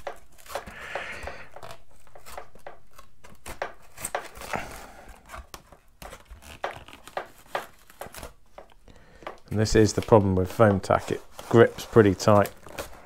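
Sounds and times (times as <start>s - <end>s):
foam squeaking and creaking: 0.0s - 8.3s.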